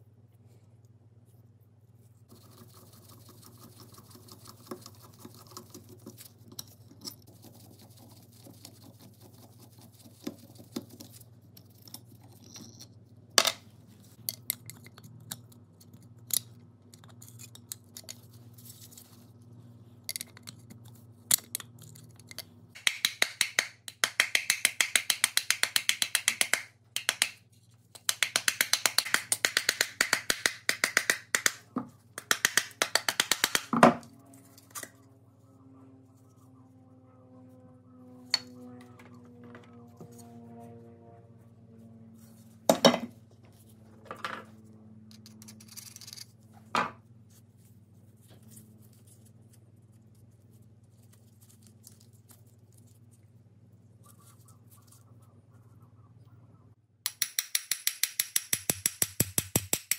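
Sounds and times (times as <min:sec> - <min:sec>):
screwdriver clicking and scraping on metal: 0:45.1 - 0:46.3.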